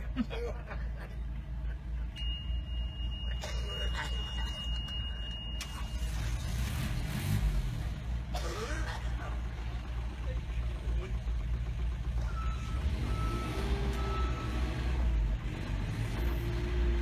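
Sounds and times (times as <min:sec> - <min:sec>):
diesel engine rumbling: 0:00.0 - 0:17.0.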